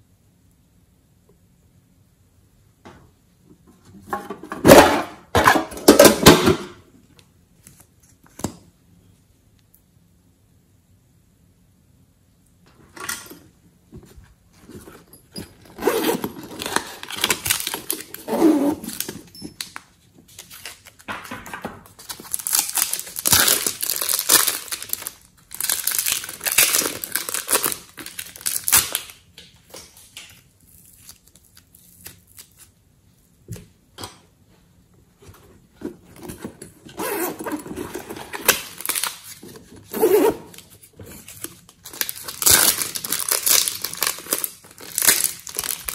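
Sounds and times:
plastic bags crinkling and tearing: 0:15.5 - 0:21.1, 0:22.0 - 0:32.7, 0:36.9 - 0:45.9.

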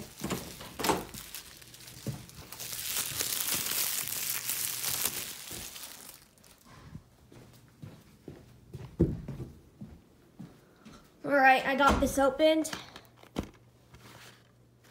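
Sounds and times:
cellophane crinkling: 0:00.0 - 0:06.9.

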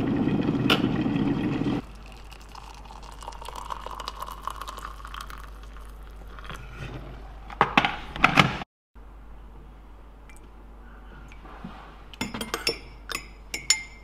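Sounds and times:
water pouring into mug: 0:01.8 - 0:06.7.

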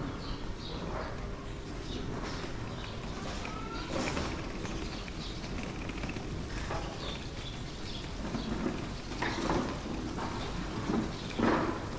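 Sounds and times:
low street rumble: 0:00.0 - 0:11.9
faint bird calls: 0:01.9 - 0:07.6.

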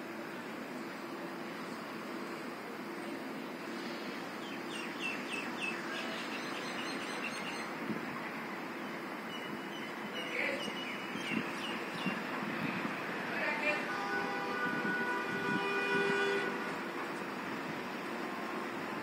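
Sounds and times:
small bird chirping: 0:04.5 - 0:07.8.

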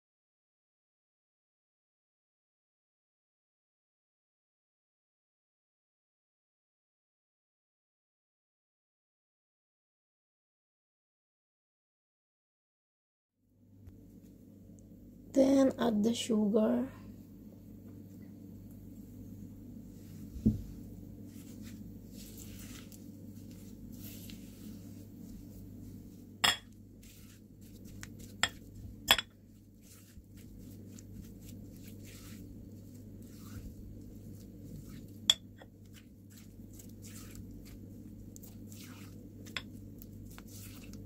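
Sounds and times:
low hum: 0:16.9 - 0:41.0
utensil scraping a mixing bowl: 0:21.2 - 0:26.2, 0:26.9 - 0:41.0.

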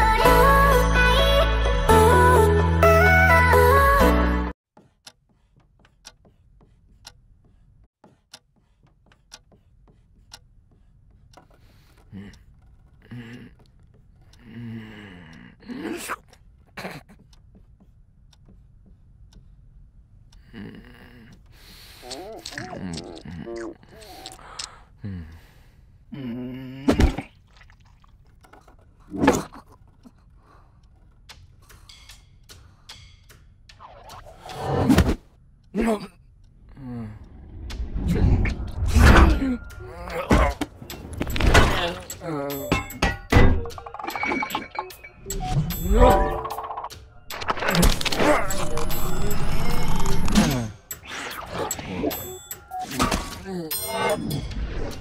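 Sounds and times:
wall clock ticking: 0:04.8 - 0:15.4, 0:16.2 - 0:20.5, 0:29.8 - 0:34.2, 0:42.0 - 0:45.9, 0:50.8 - 0:52.9
low drawn-out vocal sound: 0:36.6 - 0:40.6.

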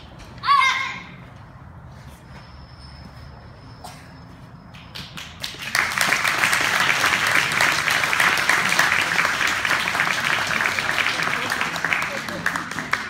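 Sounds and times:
audience applause: 0:05.4 - 0:13.0.

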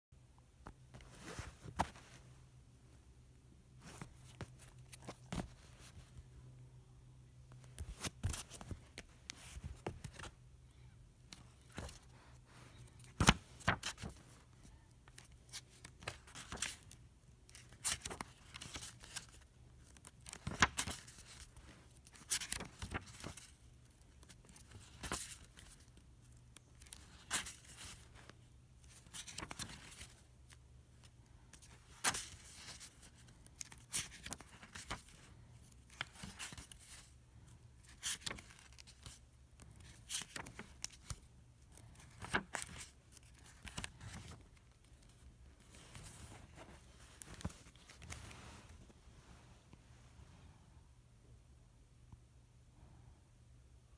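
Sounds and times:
paper rustling: 0:07.6 - 0:10.3, 0:11.3 - 0:30.6, 0:31.5 - 0:37.2, 0:37.8 - 0:48.9
paper crackles and snaps: 0:12.8 - 0:14.4, 0:15.1 - 0:30.6, 0:37.8 - 0:45.2.

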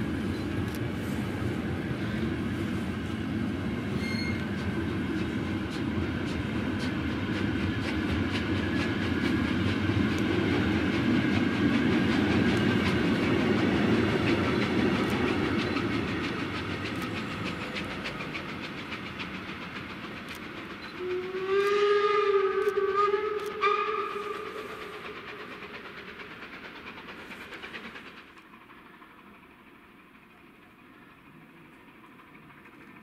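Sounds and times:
train wheels clattering: 0:00.1 - 0:33.0
steam locomotive whistle: 0:03.9 - 0:04.6, 0:21.0 - 0:25.1.

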